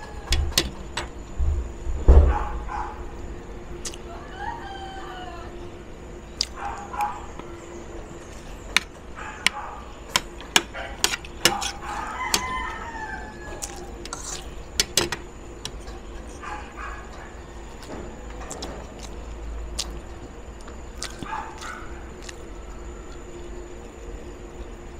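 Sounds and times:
rooster crowing: 0.0s - 1.0s, 3.9s - 5.8s, 11.5s - 14.4s.

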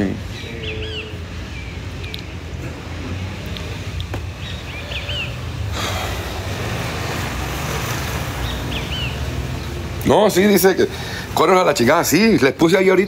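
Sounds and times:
bird chirping: 0.0s - 5.7s, 8.4s - 10.1s
low rumble of road traffic: 0.0s - 13.0s
rushing noise: 4.6s - 9.6s.

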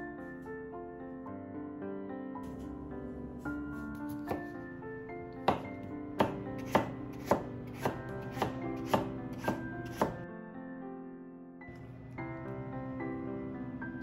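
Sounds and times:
soft background music: 0.0s - 14.0s
knife slicing on wooden board: 3.5s - 4.6s, 5.5s - 10.2s.

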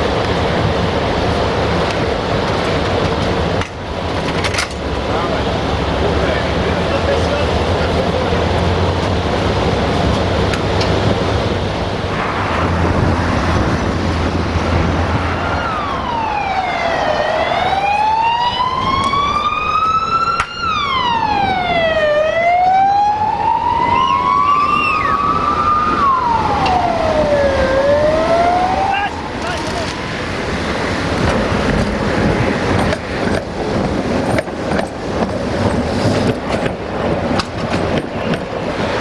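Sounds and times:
street and vehicle noise: 0.0s - 39.0s
emergency vehicle siren wailing: 4.9s - 32.9s
low hum and rumble: 11.0s - 16.5s.

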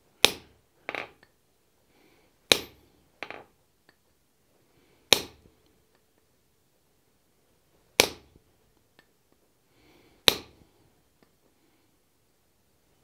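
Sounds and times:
hammer striking punch on steel: 2.5s - 2.8s, 5.1s - 5.4s, 10.3s - 10.5s.

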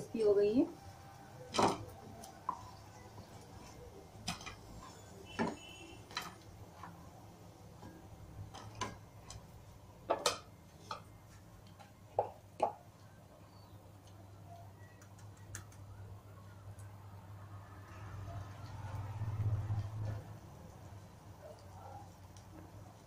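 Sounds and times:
hot oil popping and crackling: 1.5s - 13.0s, 18.6s - 23.0s.

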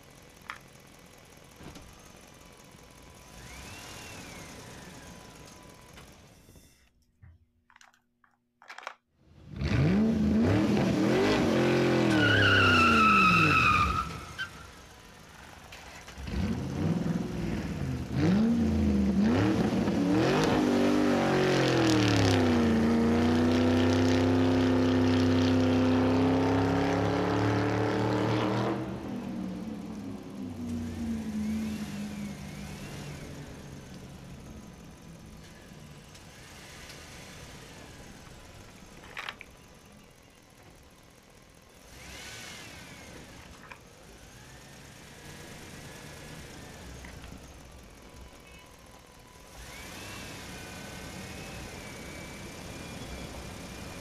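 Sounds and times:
car engine revving: 2.0s - 5.8s, 9.4s - 39.0s, 41.6s - 48.2s, 49.4s - 54.0s
tyre screech: 11.8s - 14.7s.

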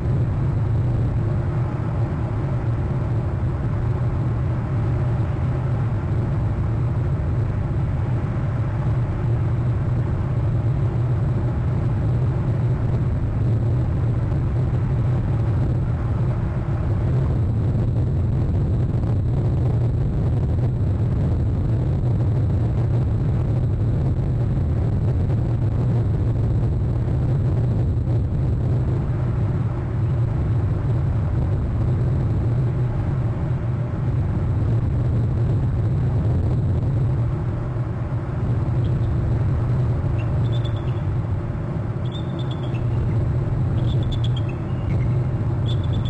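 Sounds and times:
low rumble: 0.0s - 46.0s
eagle calls: 40.2s - 41.0s, 42.0s - 43.2s, 43.8s - 46.0s.

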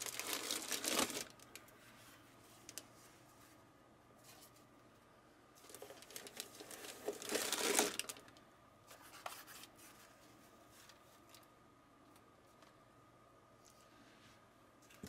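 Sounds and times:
packaging wrap crinkling and tearing: 0.0s - 1.6s, 5.6s - 8.3s.

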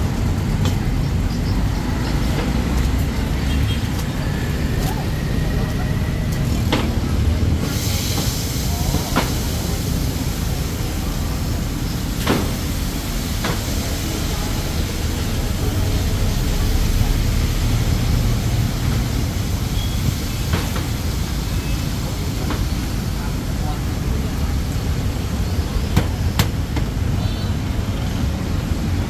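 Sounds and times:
low traffic rumble: 0.0s - 29.0s
steady hiss: 6.3s - 28.8s.

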